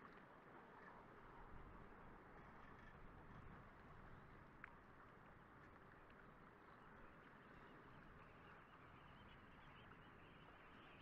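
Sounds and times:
faint tick: 4.4s - 6.3s.

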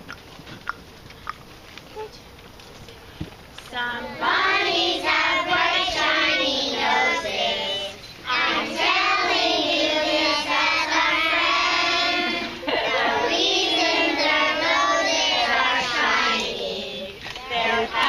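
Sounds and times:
young children singing: 4.0s - 18.0s.

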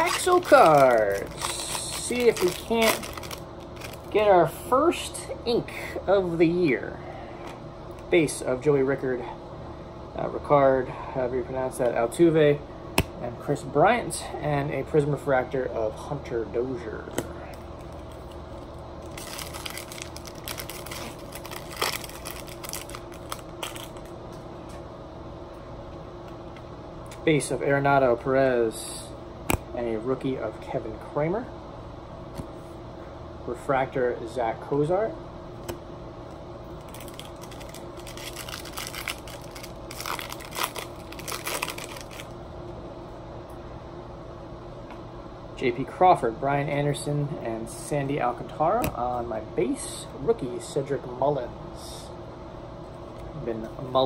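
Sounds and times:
cards rustling and flicking: 0.0s - 4.1s, 17.2s - 24.1s, 36.8s - 42.3s
foil wrapper tearing and crinkling: 0.0s - 4.2s, 19.0s - 24.0s, 36.8s - 42.3s.

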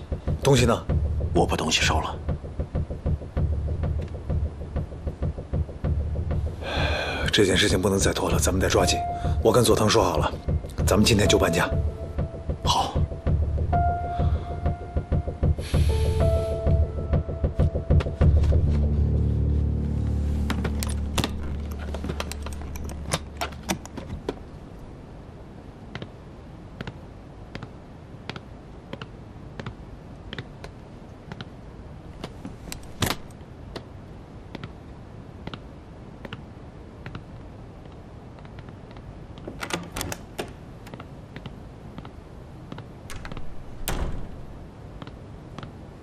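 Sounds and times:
wooden case being handled: 20.3s - 24.4s.

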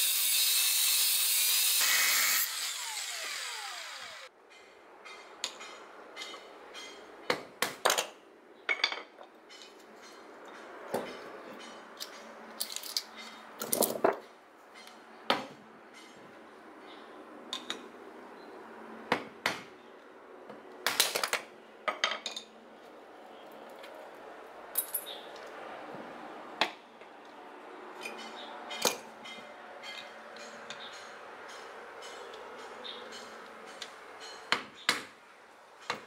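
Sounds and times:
metal transformers clinking on concrete: 8.7s - 14.2s, 24.7s - 25.2s.

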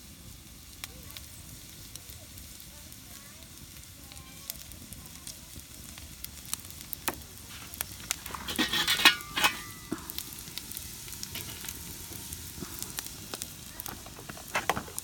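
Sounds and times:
fire crackling: 0.0s - 15.0s
onions sizzling in a pan: 0.0s - 15.0s
pan scraping on metal grill: 7.0s - 15.0s.

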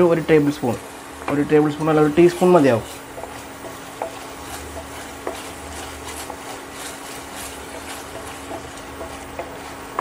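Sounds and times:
gravy sizzling in a frying pan: 0.0s - 10.0s
spatula knocking against pan: 2.4s - 6.8s, 7.6s - 10.0s.

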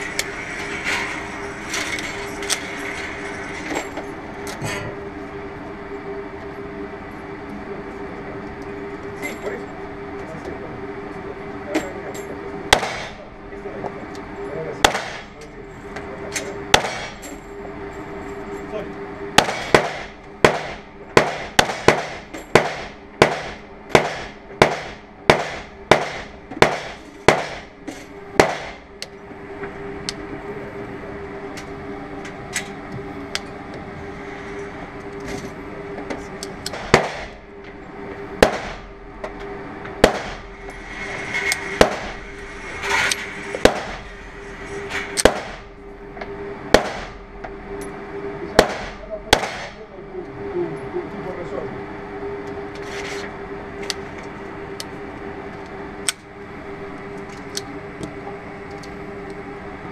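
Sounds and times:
steady hum: 0.0s - 59.9s
pistol shots indoors: 48.6s - 49.8s.

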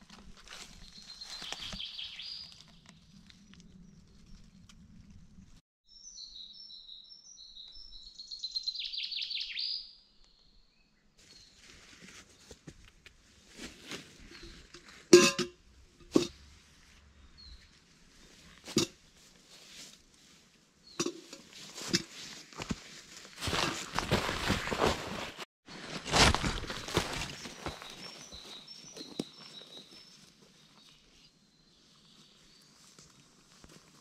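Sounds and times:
songbird singing with trill: 1.0s - 2.5s, 5.9s - 10.8s
rustling: 21.2s - 29.8s.

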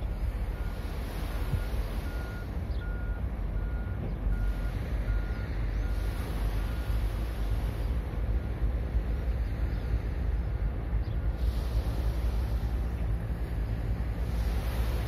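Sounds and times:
steady low rumble: 0.0s - 15.0s
reversing alarm beeping: 0.6s - 7.0s.

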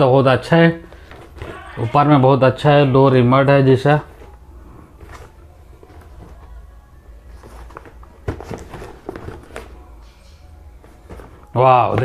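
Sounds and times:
low steady hum: 0.0s - 12.0s
cardboard box rustling: 0.9s - 1.7s, 4.0s - 6.6s, 7.2s - 9.8s, 10.8s - 12.0s.

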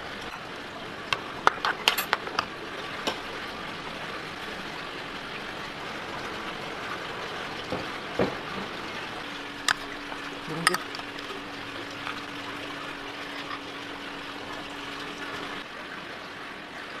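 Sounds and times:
metal spoon clinking against bowls: 10.6s - 11.3s.

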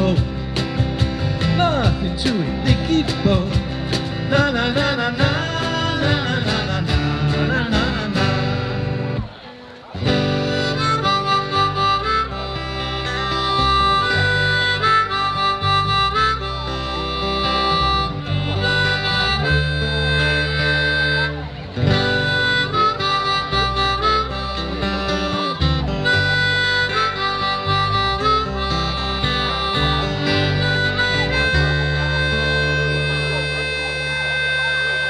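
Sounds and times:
bass line: 0.0s - 9.4s, 10.0s - 35.0s
strummed guitars: 0.0s - 35.0s
harmonica playing held notes: 10.0s - 35.0s.

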